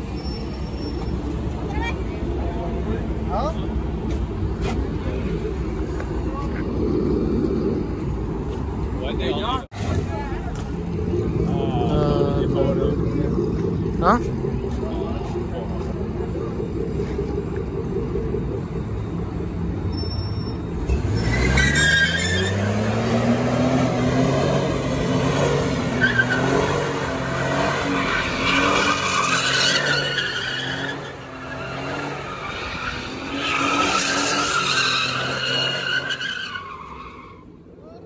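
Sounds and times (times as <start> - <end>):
tyres spinning and squealing: 0.0 - 38.0
truck engine revving hard: 20.8 - 36.6.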